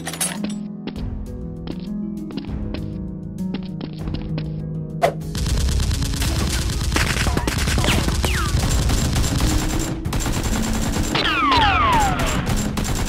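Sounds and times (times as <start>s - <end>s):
rapid automatic gunfire: 5.3s - 13.0s.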